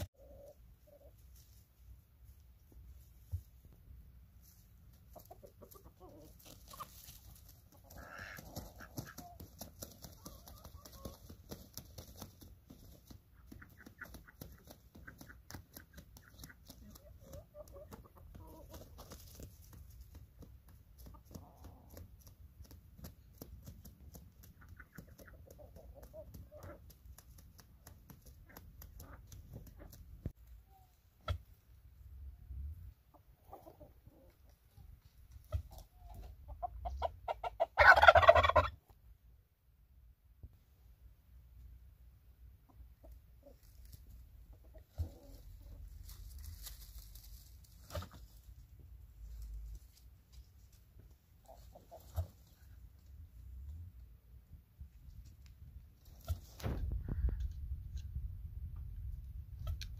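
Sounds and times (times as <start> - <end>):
chickens clucking: 0.0 - 1.6, 4.4 - 32.1, 32.9 - 39.0, 42.3 - 53.1.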